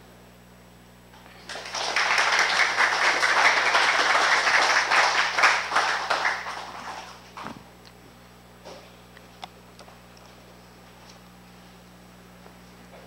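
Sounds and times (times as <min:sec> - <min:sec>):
audience applauding: 0:01.4 - 0:07.2.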